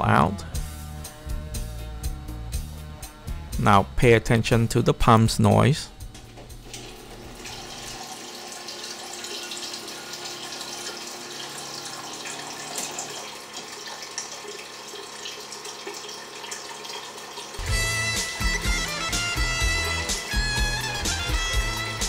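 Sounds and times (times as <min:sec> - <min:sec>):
water pump running: 0:05.9 - 0:22.0
water flowing into a pot: 0:06.6 - 0:17.8.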